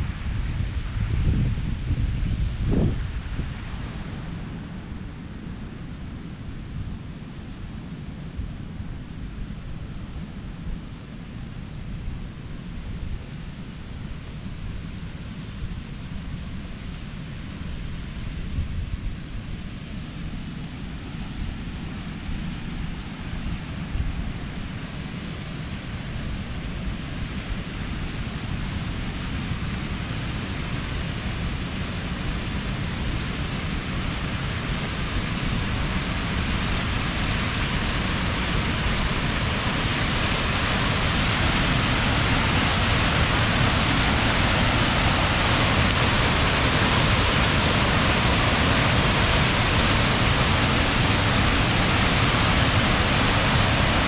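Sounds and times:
waterfall rushing: 0:27.7 - 0:54.0.

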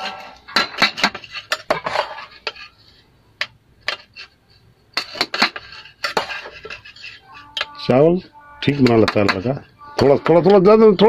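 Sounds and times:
spoon clinking on metal pot: 0:08.6 - 0:11.0.

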